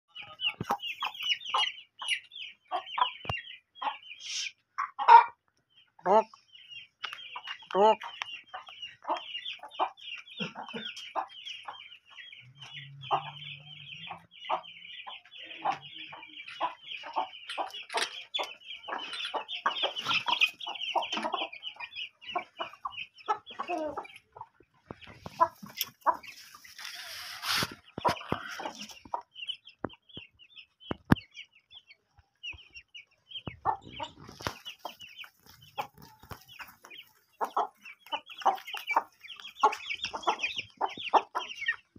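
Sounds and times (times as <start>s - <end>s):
chicks peeping: 0.1s - 41.9s
hens clucking: 0.1s - 41.9s.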